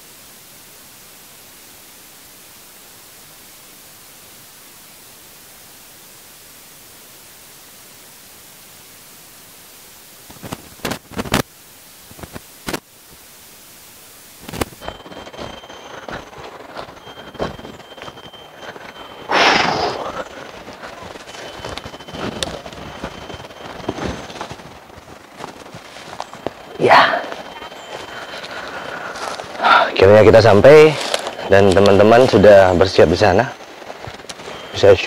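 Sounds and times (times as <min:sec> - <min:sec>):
steady hiss: 0:00.0 - 0:35.0
rustling and clattering: 0:20.0 - 0:26.7.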